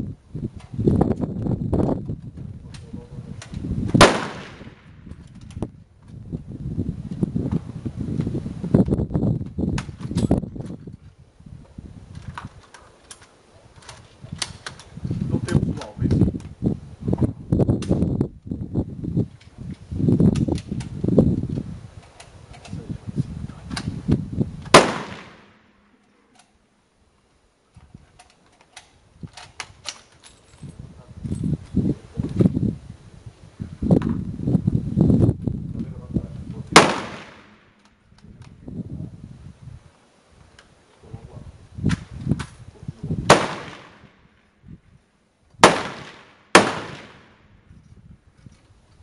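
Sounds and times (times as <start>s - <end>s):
rifle shot echoing: 4.0s - 5.0s, 24.7s - 25.8s, 36.7s - 37.8s, 43.3s - 44.3s, 45.6s - 47.5s.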